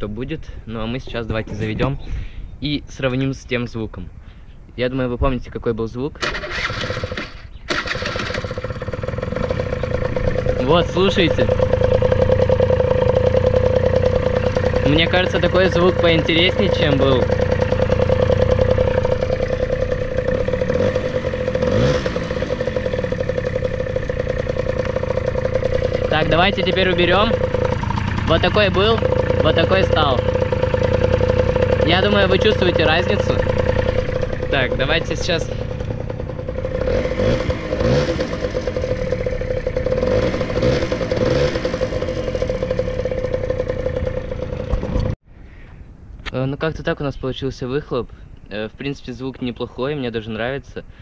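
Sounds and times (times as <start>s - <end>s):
scooter engine idling: 6.2s - 45.2s
exhaust pulses chuffing on a can: 7.1s - 45.2s.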